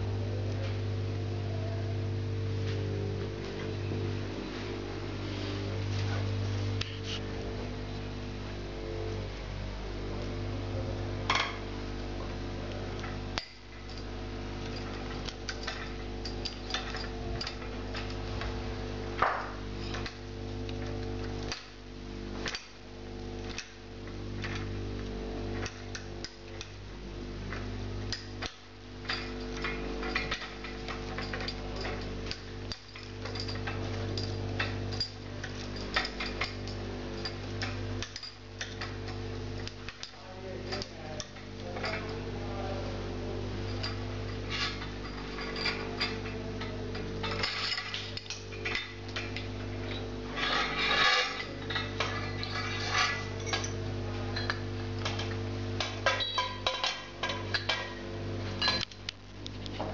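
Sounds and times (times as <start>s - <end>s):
steady low hum: 0.0s - 59.9s
metal lamp parts clinking: 12.7s - 18.6s, 19.2s - 21.8s, 22.4s - 26.8s, 27.5s - 42.6s, 43.3s - 59.1s.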